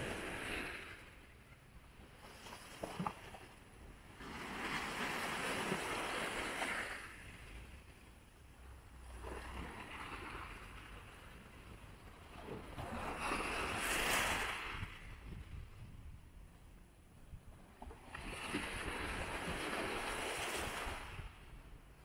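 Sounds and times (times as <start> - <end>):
small waves washing on beach: 2.2 - 7.5, 17.9 - 21.4.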